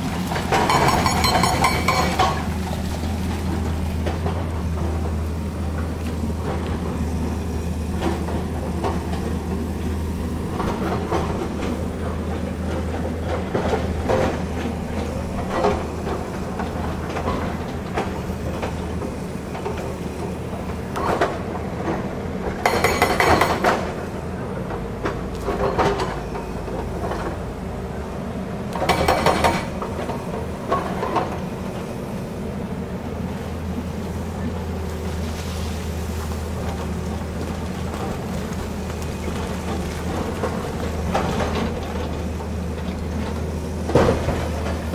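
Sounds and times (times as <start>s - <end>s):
excavator diesel hum: 0.0s - 44.9s
bucket clattering on rock: 0.4s - 3.2s.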